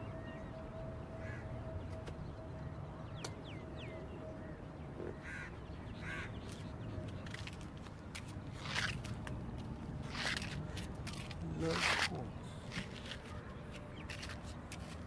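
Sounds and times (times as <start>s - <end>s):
crow cawing: 1.2s - 1.5s, 5.1s - 6.4s.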